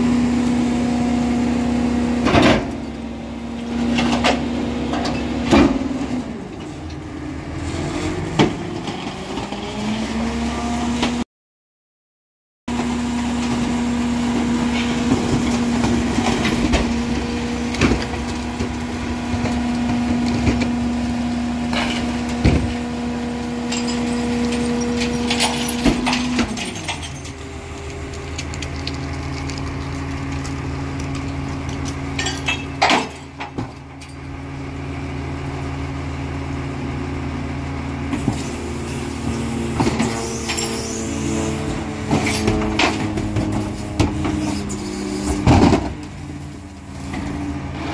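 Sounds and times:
diesel engine running: 0.0s - 11.2s, 12.7s - 47.9s
knocks and scrapes from hopper: 2.1s - 3.0s, 3.6s - 7.0s, 12.7s - 33.9s, 38.1s - 47.9s
hydraulic tipper whining: 38.2s - 46.5s.

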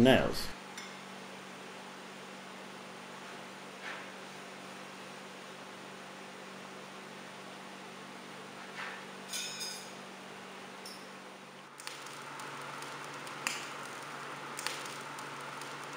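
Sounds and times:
low hum and hiss: 0.0s - 3.6s.

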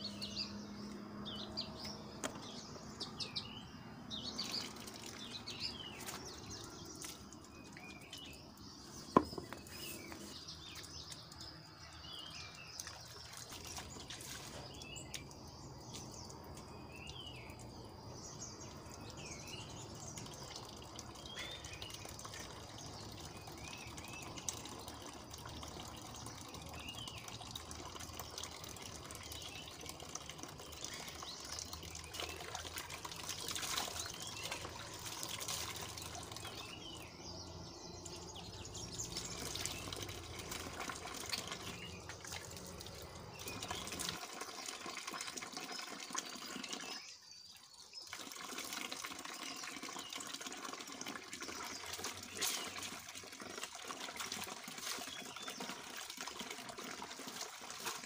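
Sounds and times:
water splashing into plastic basin: 4.1s - 47.0s, 48.0s - 58.0s.

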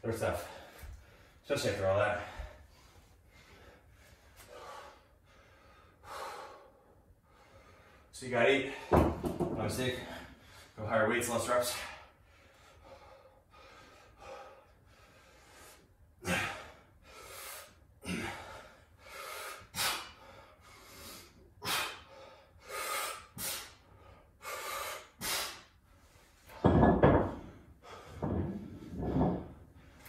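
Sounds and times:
person breathing hard: 2.3s - 8.1s, 12.0s - 25.8s, 27.3s - 30.0s.

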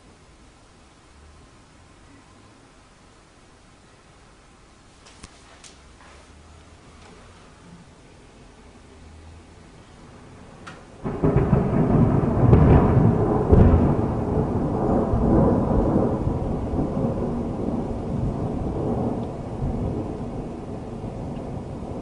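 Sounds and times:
low thunder rumble: 10.0s - 22.0s
thunderclap: 10.6s - 22.0s.

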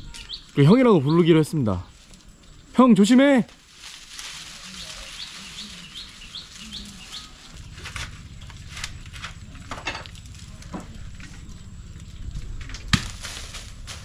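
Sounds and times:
small bird chirping: 0.0s - 1.6s, 4.6s - 9.2s
rustles: 0.0s - 14.0s
low steady hum: 5.4s - 14.0s.

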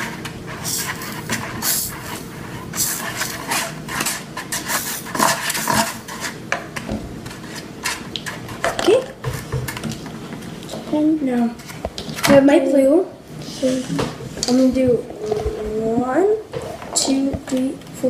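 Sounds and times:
plastic spoon scraping bowl: 0.0s - 6.5s, 7.2s - 10.0s.

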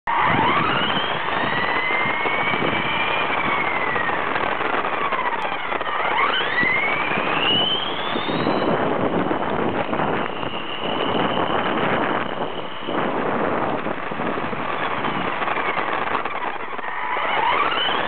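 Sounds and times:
electric motor and gear whine: 0.1s - 18.0s
small tyres rolling on asphalt: 0.1s - 18.0s.

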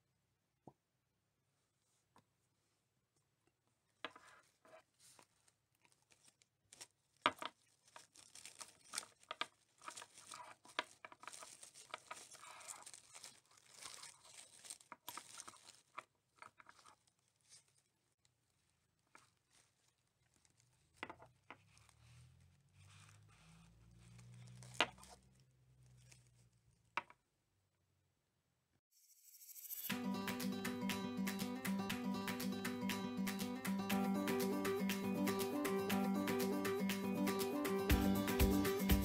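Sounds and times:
crinkling and rustling of netting: 4.2s - 27.0s.

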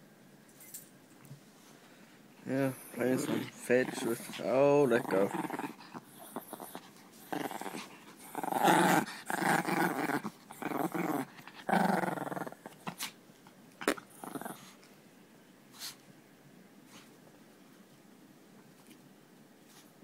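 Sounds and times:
dog play growling: 2.4s - 13.2s, 13.8s - 14.8s.

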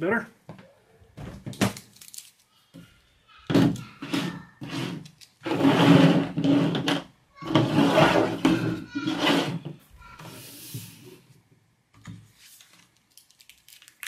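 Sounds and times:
plastic cases and cables scraping: 3.5s - 9.7s.

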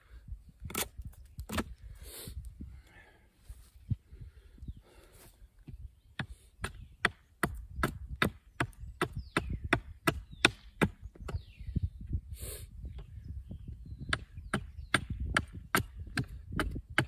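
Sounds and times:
hatchet striking wood: 6.2s - 11.5s, 14.1s - 17.0s.

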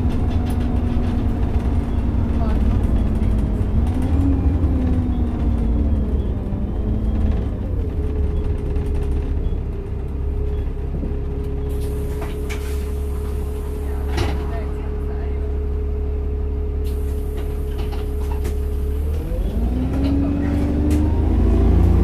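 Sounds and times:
bus engine and drivetrain whine: 0.0s - 22.0s.

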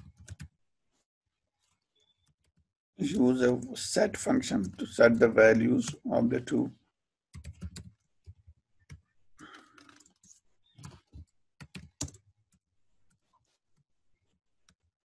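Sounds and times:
keyboard typing: 0.0s - 0.6s, 7.3s - 13.3s.

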